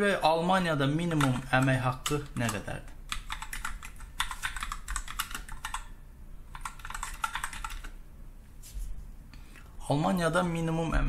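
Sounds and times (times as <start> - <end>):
typing on computer keyboard: 1.0 - 8.0.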